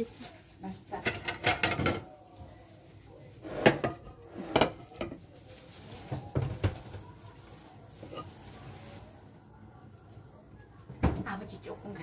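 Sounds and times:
dishes and containers knocking: 1.0s - 2.1s, 3.6s - 5.2s.

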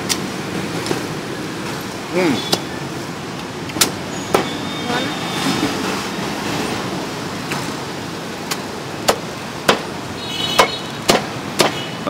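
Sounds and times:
street traffic rumble: 0.0s - 12.0s
cleaver chopping on block: 9.0s - 9.9s, 10.6s - 11.8s.

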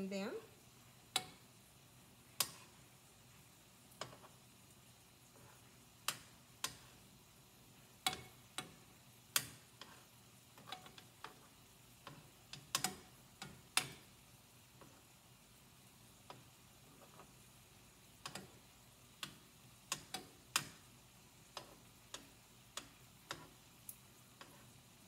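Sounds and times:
metal tongs clicking on skillet: 1.1s - 1.5s, 2.4s - 2.8s, 3.9s - 4.4s, 5.4s - 7.0s, 8.0s - 14.1s, 18.2s - 24.7s.

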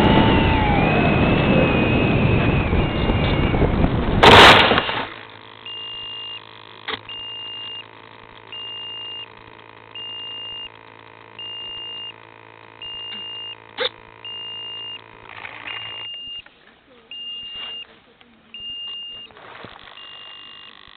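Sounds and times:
faint steady hum: 0.0s - 20.9s
high electronic beeps: 14.2s - 16.5s, 17.1s - 17.9s, 18.6s - 20.9s.

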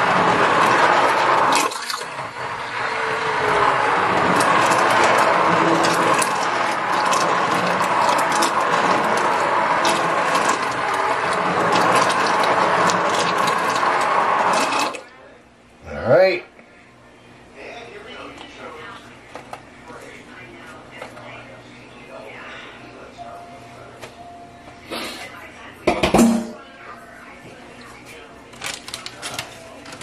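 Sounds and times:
immersion blender whirring: 0.0s - 15.1s.

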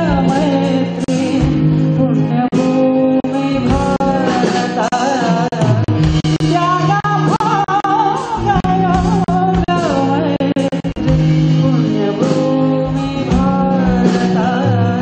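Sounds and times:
live band: 0.0s - 15.0s
man singing into microphone: 0.0s - 15.0s
sustained bass notes: 0.0s - 15.0s
drum hits: 5.6s - 7.5s, 8.4s - 14.4s.

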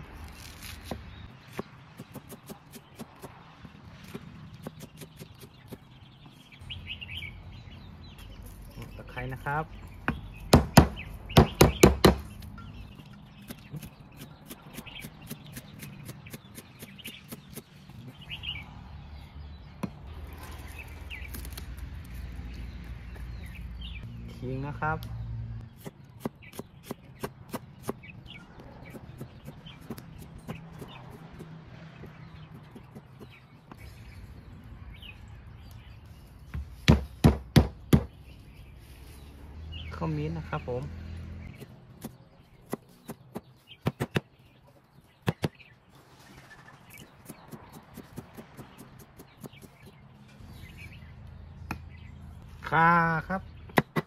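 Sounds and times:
knife chopping on wooden block: 10.0s - 12.3s, 36.5s - 38.1s.

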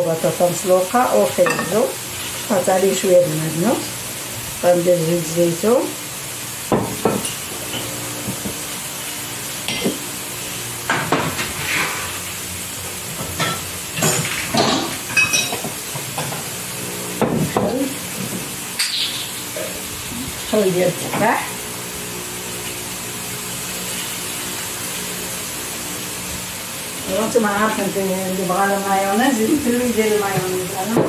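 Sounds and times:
steady hiss: 0.2s - 30.9s
glass bottles clinking: 1.4s - 1.7s, 14.6s - 15.6s.

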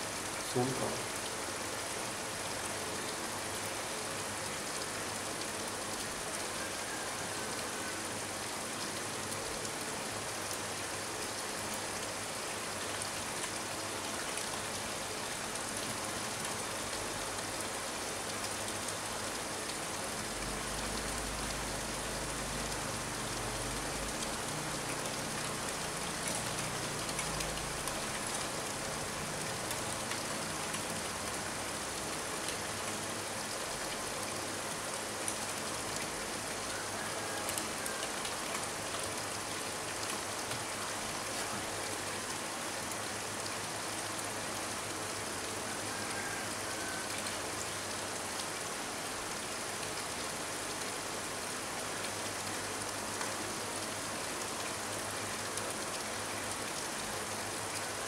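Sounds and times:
rain on pond and concrete: 0.0s - 58.0s
water stream trickling: 0.0s - 58.0s.

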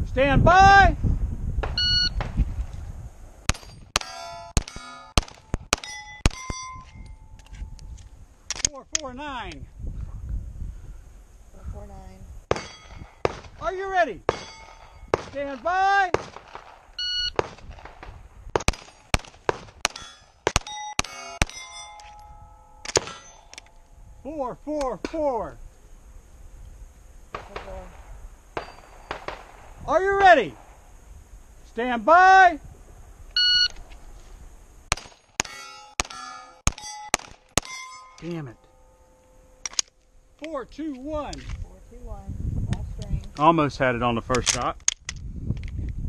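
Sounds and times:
shot timer beep: 1.8s - 2.2s, 17.0s - 17.4s, 33.4s - 33.8s
pistol shots: 3.5s - 6.6s, 12.5s - 13.6s, 14.3s - 21.7s, 22.8s - 23.6s, 27.3s - 29.8s, 34.9s - 37.8s
steel target plates ringing: 3.5s - 7.4s, 12.5s - 13.3s, 14.3s - 15.2s, 19.8s - 24.2s, 28.6s - 29.3s, 34.9s - 39.7s.

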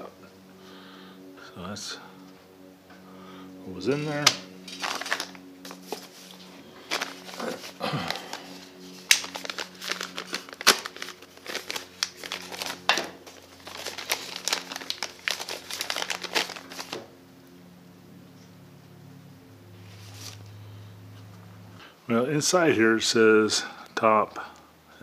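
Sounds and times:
plastic packaging crinkling: 3.9s - 17.1s.

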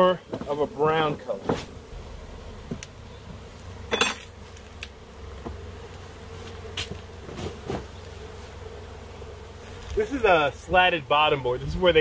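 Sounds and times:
honeybees buzzing: 0.0s - 12.0s
wooden hive boxes knocking: 0.2s - 8.4s.

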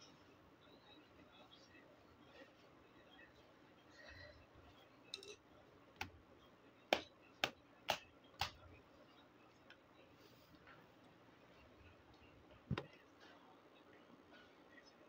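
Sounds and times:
clicks and taps on hard plastic: 6.9s - 8.6s, 12.7s - 13.0s.

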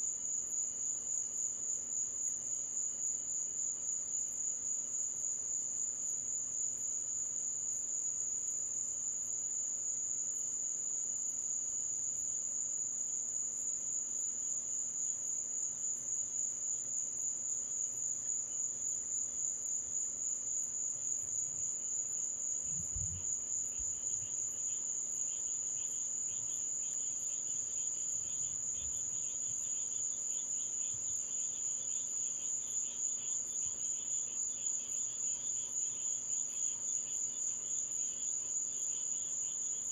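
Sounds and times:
lower insect trill: 0.0s - 39.9s
high-pitched pulsing insect trill: 20.6s - 39.9s.

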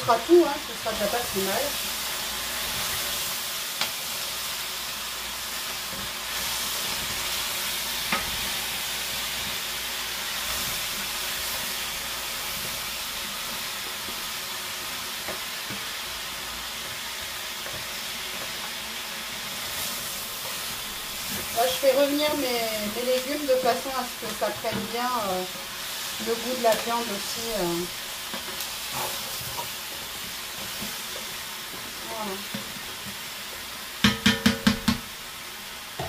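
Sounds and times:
vegetables sizzling in oil: 0.0s - 36.0s
spoon knocking against pot: 34.0s - 35.1s.

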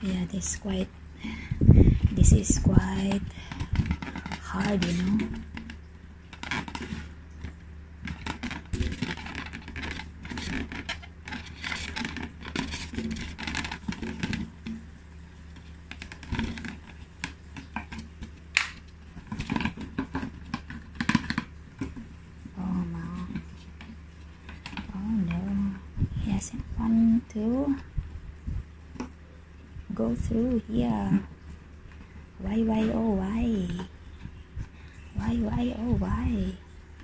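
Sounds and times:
balloon handling clicks and rubbing: 3.2s - 14.8s, 15.6s - 22.1s.

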